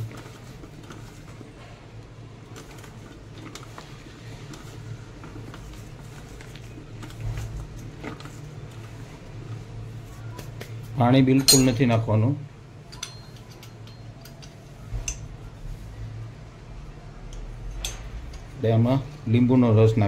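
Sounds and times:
okra rustling in a bowl: 0.0 - 11.0
low steady hum: 0.0 - 20.0.

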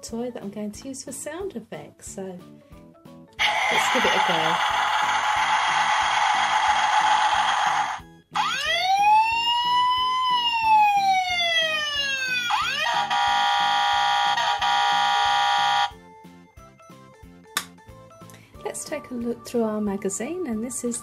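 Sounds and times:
toy siren wail: 3.4 - 16.0
background music with beat: 8.0 - 13.4
electronic horn tone: 13.0 - 16.0.

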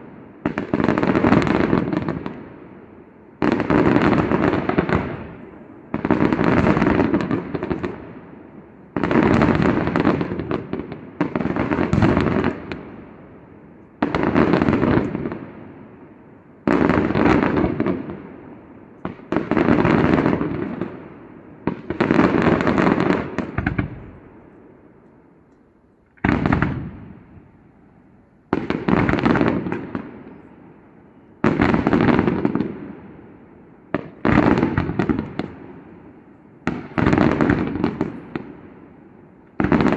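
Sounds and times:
fireworks bursting and crackling: 0.0 - 24.8, 25.6 - 39.9.

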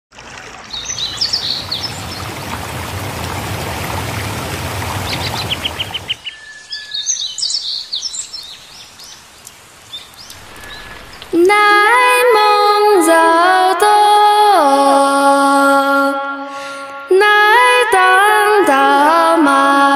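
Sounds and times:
rushing splashing water: 0.1 - 6.3, 8.2 - 13.3
small birds chirping: 0.6 - 2.7, 5.0 - 11.5.

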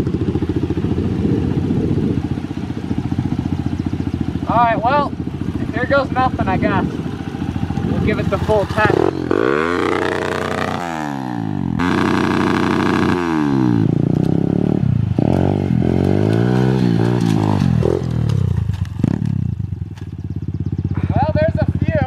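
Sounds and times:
pit bike engine revving: 0.0 - 22.0
clatter: 15.2 - 20.3.

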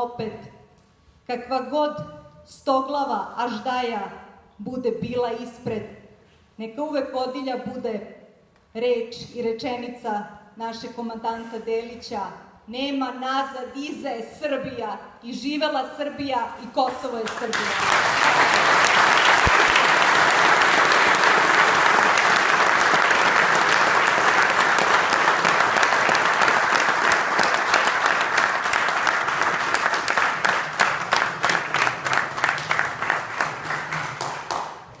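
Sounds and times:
rhythmic clapping in unison: 17.2 - 35.0
audience applause: 17.3 - 34.8.

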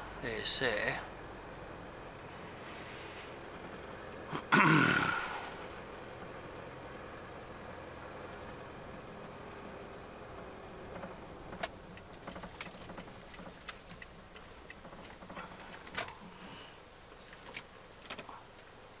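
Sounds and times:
vehicle engine rumbling: 0.0 - 19.0.

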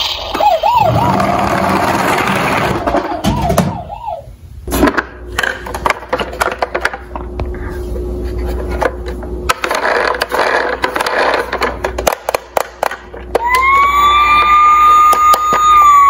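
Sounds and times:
low steady rumble: 4.0 - 12.1
plastic toys clicking and scraping: 8.6 - 13.9.

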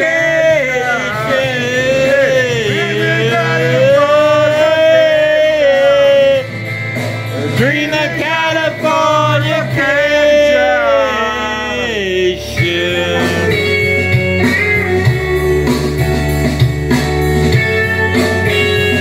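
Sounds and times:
man singing loudly: 0.0 - 6.6, 7.4 - 14.1
karaoke backing track: 0.0 - 19.0.

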